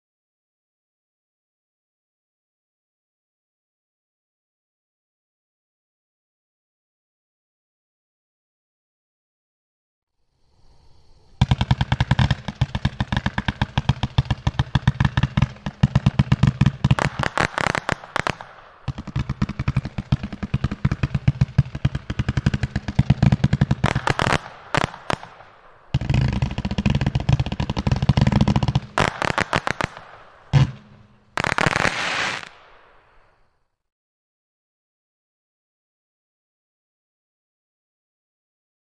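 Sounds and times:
firework cake firing volleys: 0:11.4 - 0:33.4
sharp firework bangs: 0:11.4 - 0:33.5.

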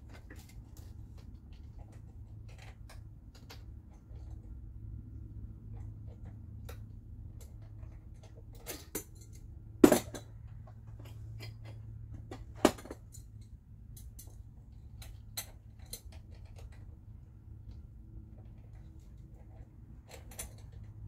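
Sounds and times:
tools clicking and clinking: 0:05.8 - 0:16.9, 0:18.6 - 0:21.0.

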